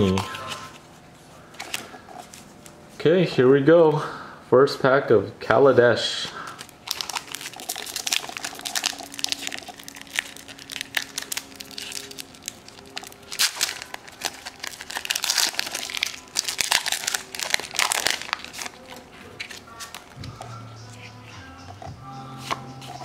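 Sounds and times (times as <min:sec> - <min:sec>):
foil wrapper crinkling: 0:06.4 - 0:20.2.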